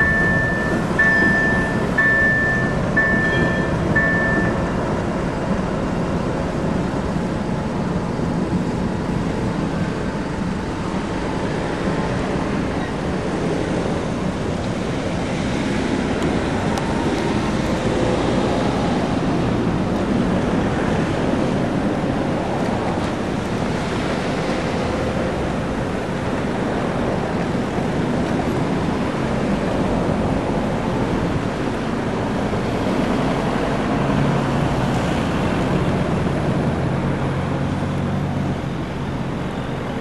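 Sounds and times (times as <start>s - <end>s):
short high beeps: 0.0s - 4.8s
diesel locomotive engine running: 0.0s - 40.0s.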